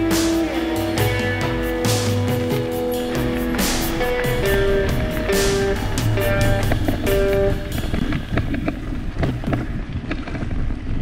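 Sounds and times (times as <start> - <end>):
guitar music: 0.0 - 9.3
low rumble: 2.8 - 11.0.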